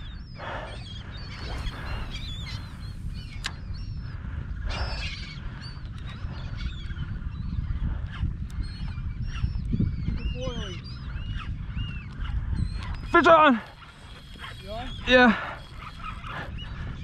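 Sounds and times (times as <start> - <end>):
steady low rumble: 0.0 - 8.6
birds chirping and squawking: 0.0 - 17.0.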